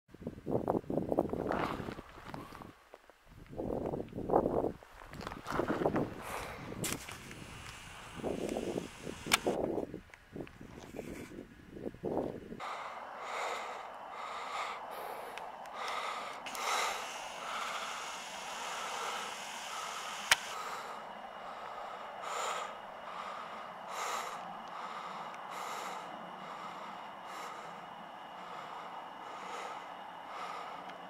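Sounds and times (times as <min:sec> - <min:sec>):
person breathing hard: 0:06.2 - 0:09.6, 0:12.6 - 0:31.0
sharp click: 0:09.2 - 0:09.6, 0:20.2 - 0:20.6.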